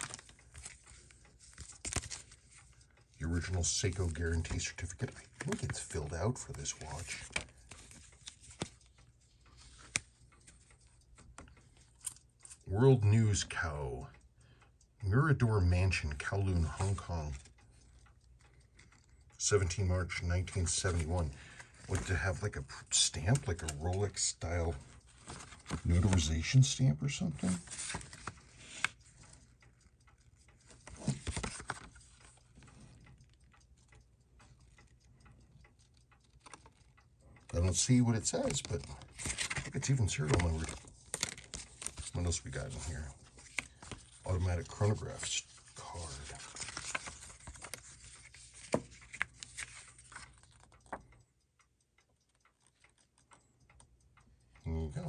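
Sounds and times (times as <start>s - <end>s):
paper card rustling: 0.0s - 10.7s, 25.1s - 26.6s, 27.2s - 29.4s, 30.6s - 32.4s, 36.2s - 36.9s, 37.6s - 51.0s
light ticks: 0.0s - 55.0s.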